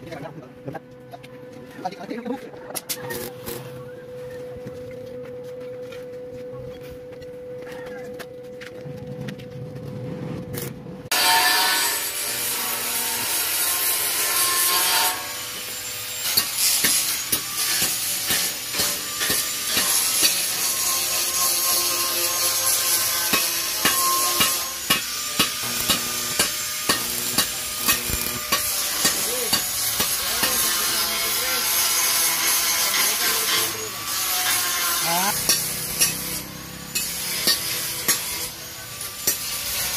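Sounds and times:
stick welder crackling and hissing: 0:10.4 - 0:39.9.

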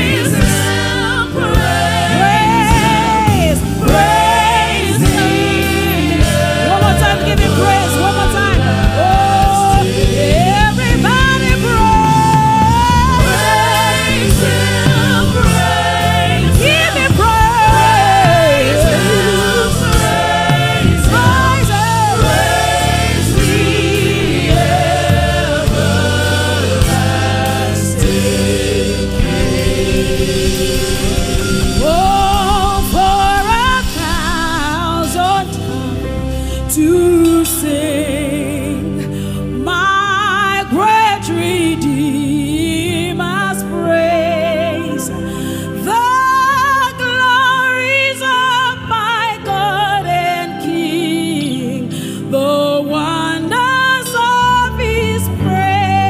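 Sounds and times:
choir singing: 0:00.0 - 0:36.2
gospel music accompaniment: 0:00.0 - 0:56.0.

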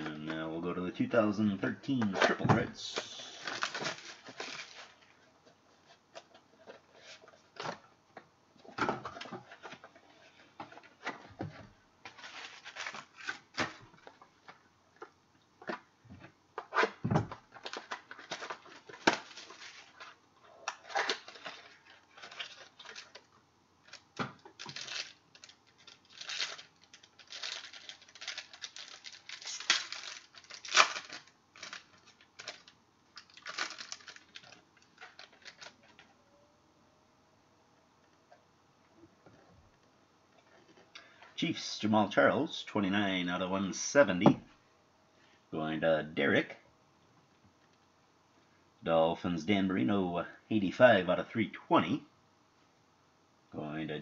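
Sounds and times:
wrappers tearing and crinkling: 0:02.9 - 0:05.0, 0:12.1 - 0:13.8, 0:17.5 - 0:36.0
cards clicking and rustling: 0:16.6 - 0:36.0.

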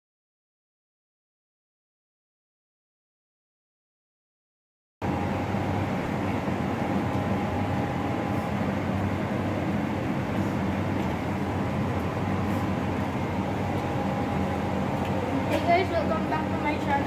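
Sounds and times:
low mechanical hum: 0:05.0 - 0:17.0.

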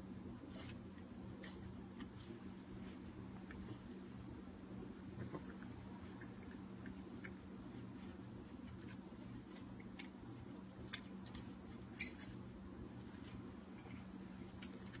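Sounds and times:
steady low hum: 0:00.0 - 0:15.0
dried catnip crackling: 0:06.0 - 0:15.0.

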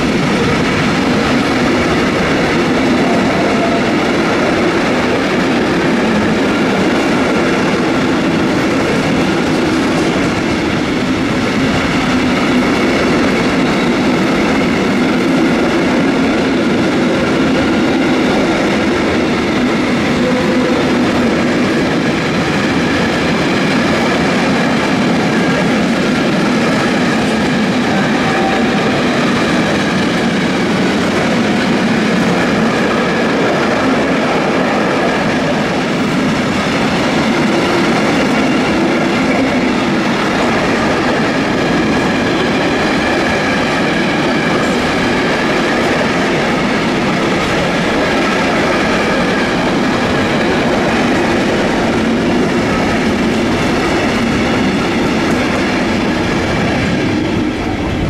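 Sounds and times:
train wheels clattering on rails: 0:00.0 - 0:58.0.

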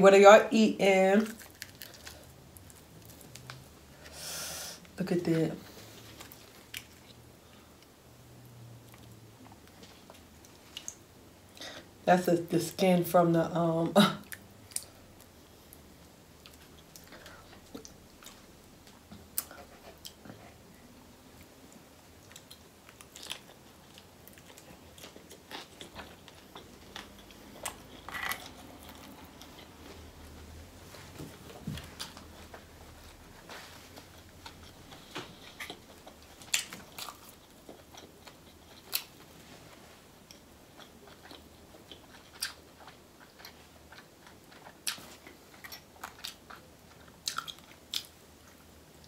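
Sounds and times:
person chewing: 0:01.4 - 0:04.0, 0:06.0 - 0:07.9, 0:16.4 - 0:20.6, 0:22.2 - 0:30.4, 0:31.4 - 0:39.3, 0:40.3 - 0:48.6.

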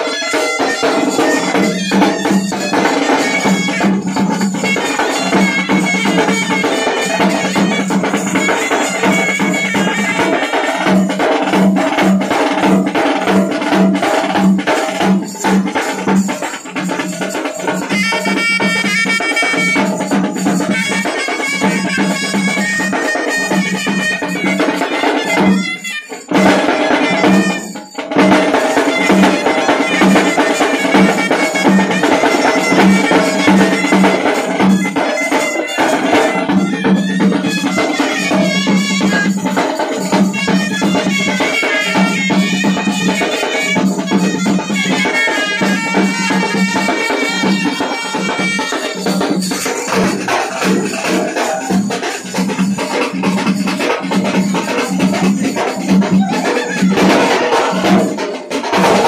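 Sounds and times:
trumpet melody: 0:00.0 - 0:11.2, 0:17.8 - 0:50.4
bass drum and side drums beating: 0:00.0 - 0:59.0
street band playing: 0:00.0 - 0:59.0.

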